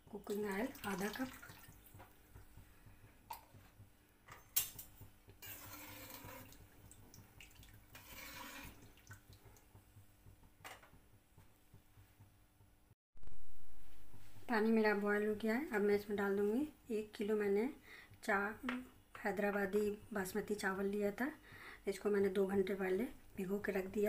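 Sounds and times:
oil splashing and dripping: 0:00.3 - 0:03.6, 0:06.4 - 0:08.0, 0:08.7 - 0:09.8.

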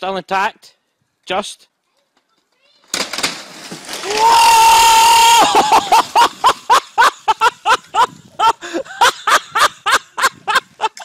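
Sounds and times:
loud laughter in bursts: 0:05.2 - 0:11.0.

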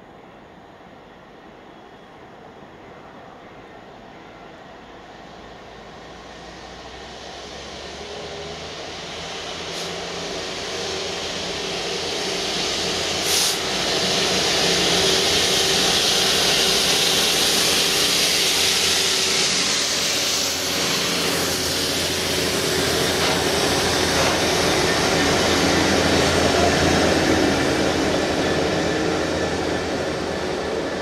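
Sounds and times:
strong hiss: 0:06.2 - 0:30.9
diesel locomotive engine drumming: 0:06.4 - 0:31.0
wheels rumbling on rails: 0:06.4 - 0:31.0.

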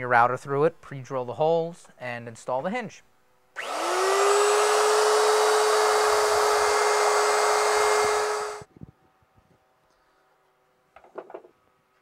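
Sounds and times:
wood router motor whining: 0:03.6 - 0:08.7.

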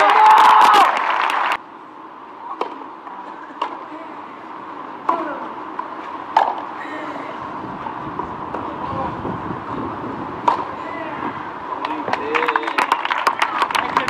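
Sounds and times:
racket hitting tennis ball: 0:05.0 - 0:06.7, 0:10.4 - 0:11.0.

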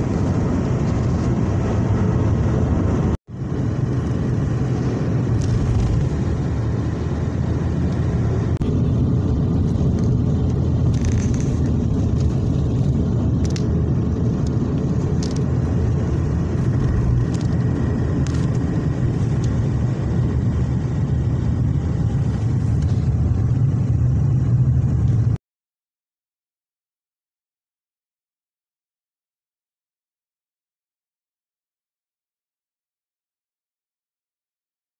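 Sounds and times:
car engine and tyre rumble: 0:00.0 - 0:25.4.

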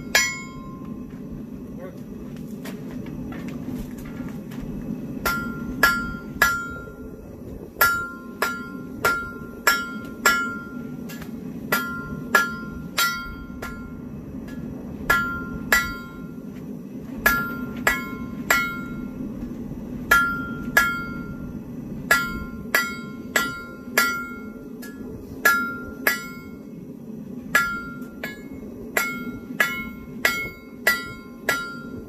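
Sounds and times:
hammer striking steel on anvil: 0:00.0 - 0:00.9, 0:05.2 - 0:07.1, 0:07.8 - 0:16.4, 0:17.2 - 0:19.1, 0:20.1 - 0:21.5, 0:22.1 - 0:26.7, 0:27.5 - 0:32.0
forge burner hum: 0:00.0 - 0:32.0.

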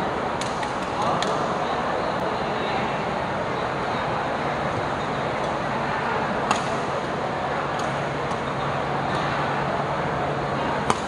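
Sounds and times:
racket hitting shuttlecock: 0:00.4 - 0:01.4, 0:06.4 - 0:06.9.

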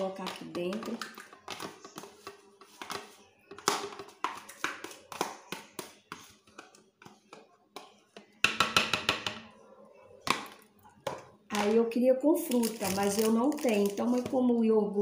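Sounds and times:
taps on plastic blender jar: 0:00.2 - 0:09.4.

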